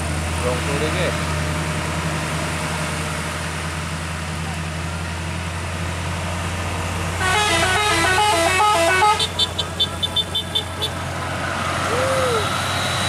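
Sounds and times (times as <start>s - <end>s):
heavy vehicle engines droning: 0.0s - 13.0s
musical air horn tune: 7.2s - 10.9s.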